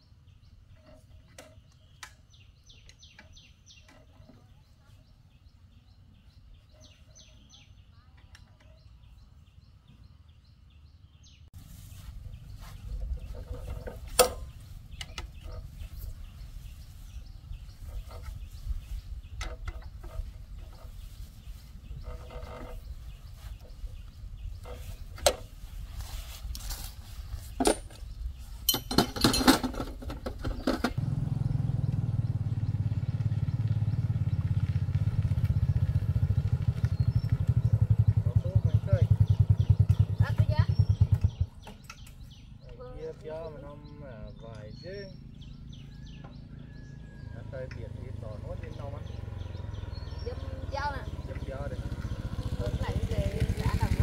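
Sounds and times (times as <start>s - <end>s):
tractor engine running: 29.1s - 42.7s, 44.3s - 54.0s.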